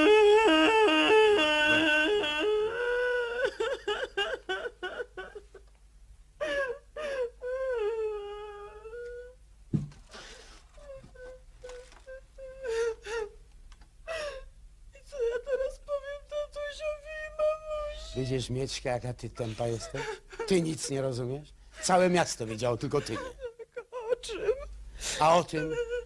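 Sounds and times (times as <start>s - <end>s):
woman wailing and sobbing: 0.0s - 5.7s, 6.4s - 9.4s, 10.8s - 13.4s, 14.1s - 18.4s, 19.4s - 21.0s, 21.8s - 26.0s
dull thump: 9.7s - 10.1s.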